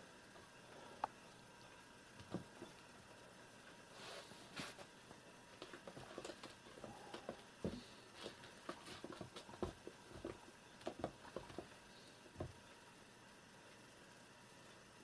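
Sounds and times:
paws pattering and scratching: 5.6 - 11.8.

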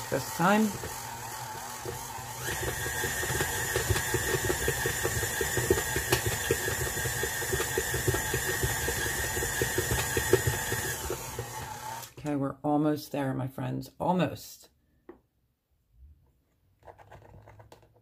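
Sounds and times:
stand mixer motor whine: 0.0 - 12.2
dough hook slapping dough: 0.8 - 11.8.

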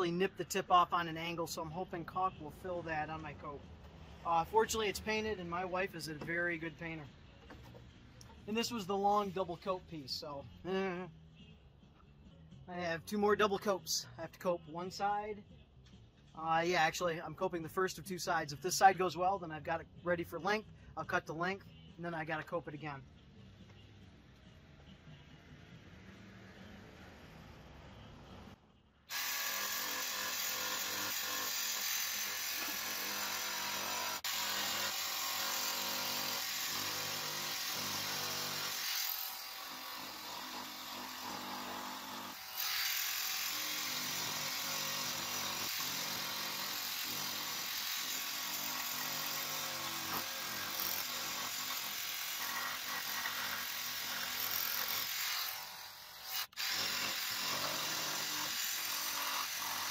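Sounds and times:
jigsaw cutting wood: 29.1 - 59.9.

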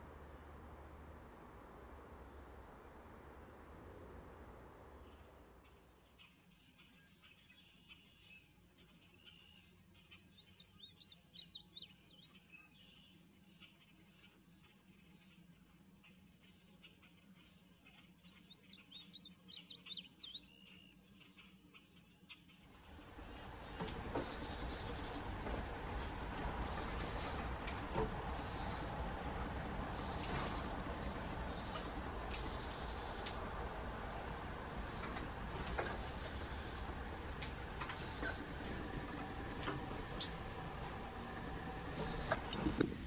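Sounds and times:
bird singing warbled phrases: 5.1 - 15.4, 16.0 - 25.3, 28.3 - 40.5.

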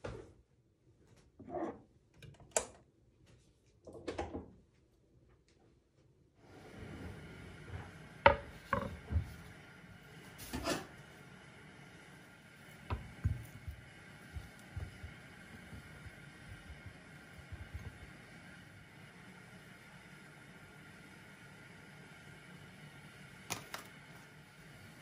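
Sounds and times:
light room hiss: 4.7 - 25.0
tableware knocking and clacking: 8.3 - 9.0.

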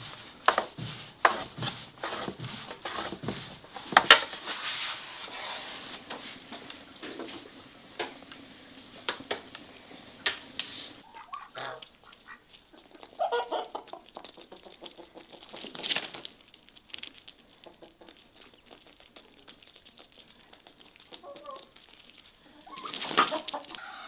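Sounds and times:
chickens clucking: 5.1 - 16.4, 17.3 - 24.0.

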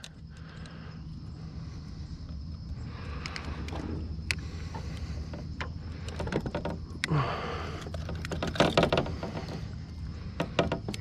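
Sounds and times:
fishing gear clicking and rattling: 0.0 - 0.8, 3.1 - 11.0.

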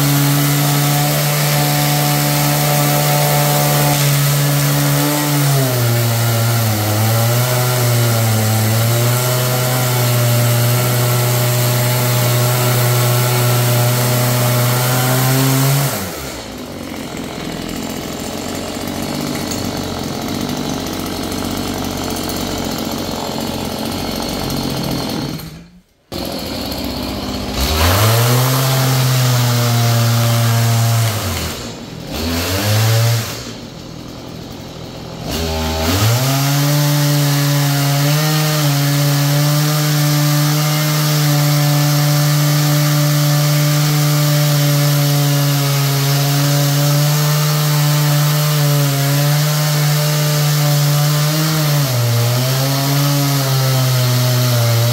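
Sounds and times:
chainsaw cutting wood: 0.0 - 54.9.

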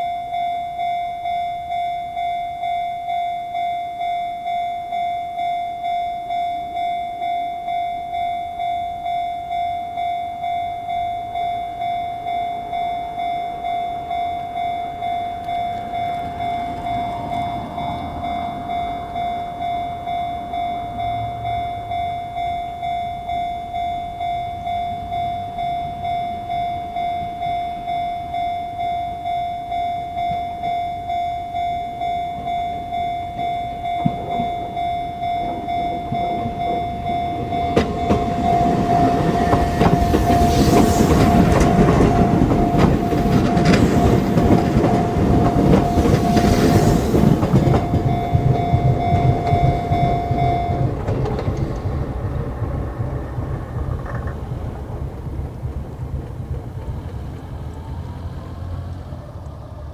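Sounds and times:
level crossing warning bell: 0.0 - 59.3
train wheels clattering over rails: 32.4 - 58.2.

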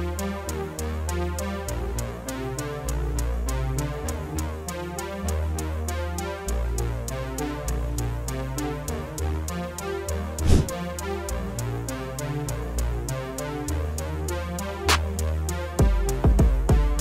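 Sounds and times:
low synth bass notes: 5.4 - 17.0
quick ticking beat: 15.8 - 17.0.

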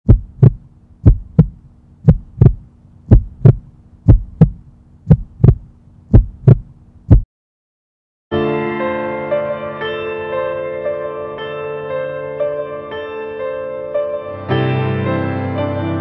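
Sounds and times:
heartbeat double thump: 0.0 - 7.3
low steady hum: 0.1 - 7.2
piano music: 8.3 - 16.0.

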